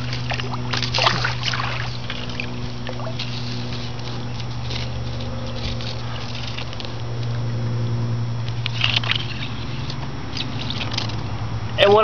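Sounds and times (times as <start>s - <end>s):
water pouring from a pipe: 0.0s - 3.7s
water splashing: 0.0s - 6.8s, 8.7s - 11.4s
steady low hum: 0.0s - 12.0s.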